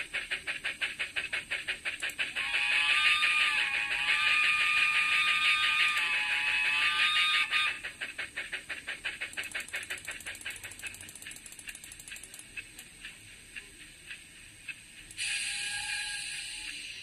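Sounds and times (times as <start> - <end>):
steam exhaust chuffs: 0.0 - 17.0
steam whistle: 2.3 - 7.9, 15.2 - 17.0.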